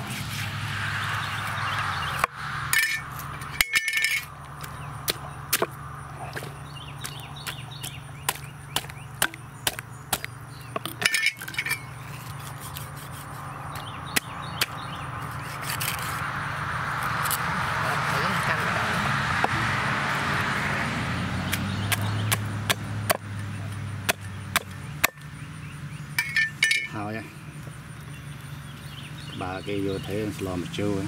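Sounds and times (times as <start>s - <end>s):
cleaver chopping on wooden block: 4.6s - 11.2s, 13.7s - 16.1s, 21.5s - 23.3s, 24.0s - 25.3s.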